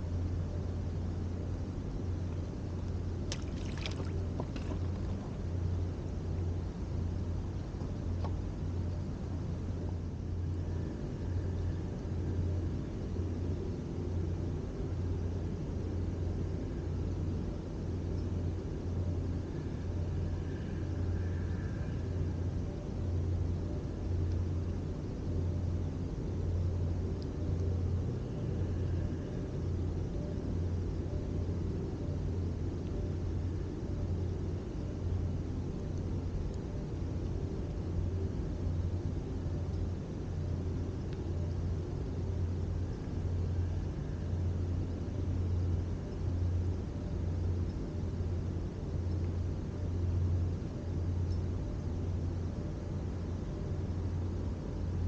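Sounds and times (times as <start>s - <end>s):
background hiss: 0.0s - 55.0s
low rumble with deep hum: 0.0s - 55.0s.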